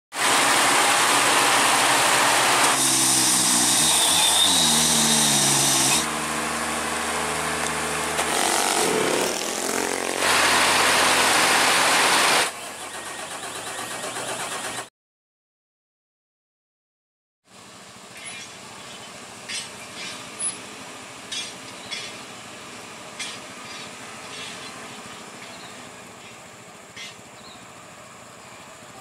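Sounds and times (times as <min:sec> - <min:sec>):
truck diesel engine revving: 0:00.1 - 0:14.9.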